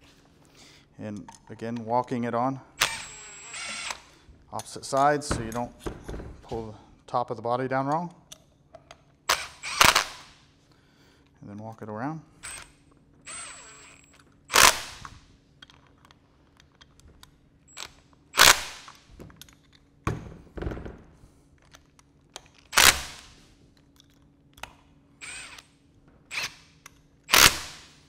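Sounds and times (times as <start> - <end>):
cordless impact driver bursts: 2.8 - 4.1, 9.3 - 10.4, 13.3 - 15.2, 18.4 - 18.9, 22.7 - 23.3, 25.2 - 25.7, 27.3 - 28.0.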